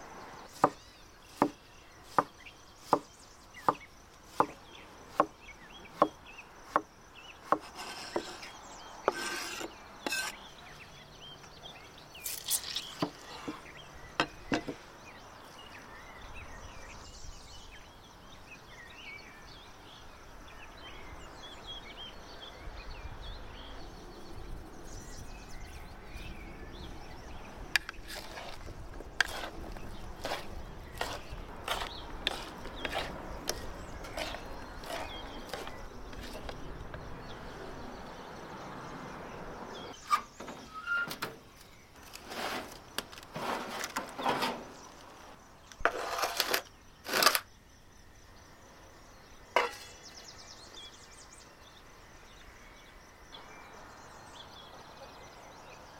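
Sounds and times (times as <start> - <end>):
birds chirping: 0.0 - 45.8, 46.6 - 55.9
insects chirping: 0.0 - 55.9
knife chopping on wooden board: 0.6 - 0.8, 1.4 - 2.3, 9.1 - 10.3, 29.2 - 29.6, 30.2 - 36.6.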